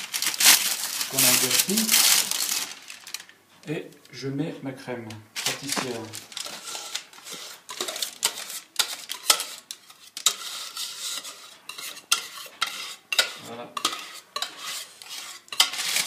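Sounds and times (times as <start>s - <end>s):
utensil scraping cream from bowl: 6.4s - 16.0s.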